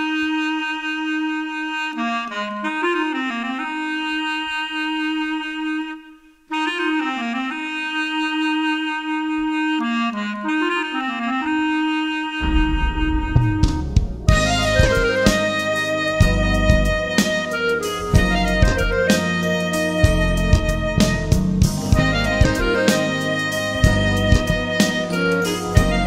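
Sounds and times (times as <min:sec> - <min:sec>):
solo woodwind melody: 0:00.0 - 0:26.0
band playing: 0:12.4 - 0:26.0.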